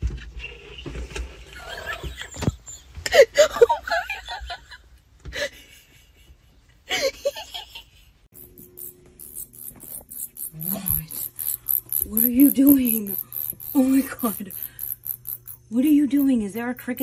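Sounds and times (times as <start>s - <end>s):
person laughing: 1.6s - 4.6s, 6.9s - 8.0s, 13.8s - 14.8s.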